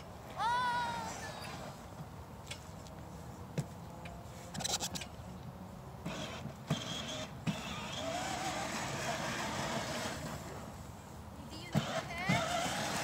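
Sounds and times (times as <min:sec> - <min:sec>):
toy electric motor whine: 0:06.1 - 0:10.4, 0:11.7 - 0:13.0.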